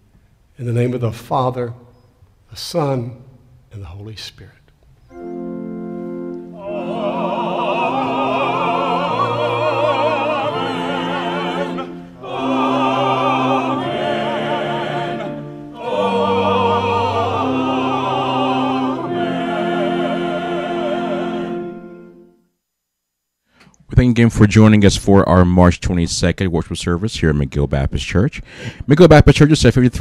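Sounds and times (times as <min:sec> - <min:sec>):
organ chords: 0:04.9 - 0:22.5
church choir singing: 0:05.1 - 0:22.4.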